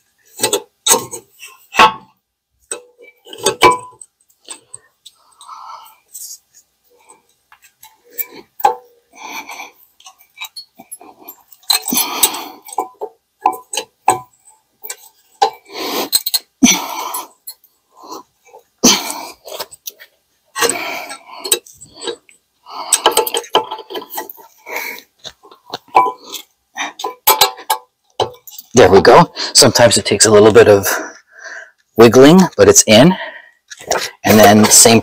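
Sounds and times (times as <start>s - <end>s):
metal scraping and clicking: 0.3s - 5.5s, 10.0s - 16.5s, 19.4s - 28.8s.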